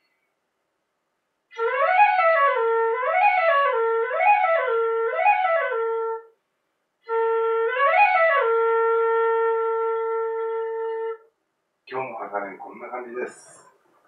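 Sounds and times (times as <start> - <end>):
bamboo flute playing runs: 7.0 - 11.2.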